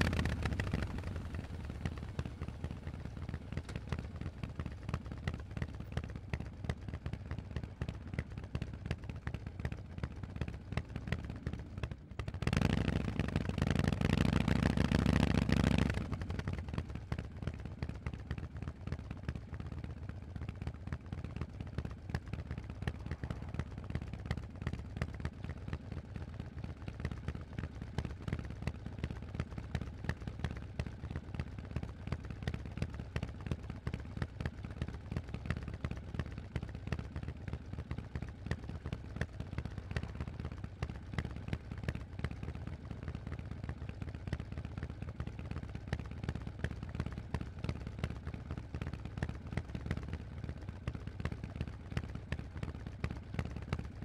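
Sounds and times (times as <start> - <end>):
motorcycle engine exhaust pulses: 0.0 - 54.0.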